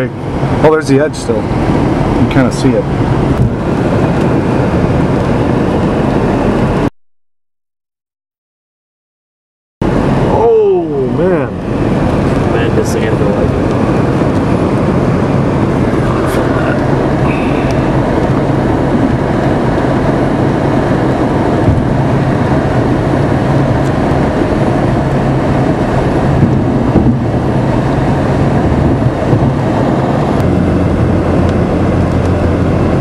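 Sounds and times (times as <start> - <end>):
car engine and tyre drone: 0.0 - 6.9, 9.8 - 33.0
rushing wind: 0.0 - 6.9, 9.8 - 33.0
car bumps: 21.6 - 21.9, 26.4 - 27.3.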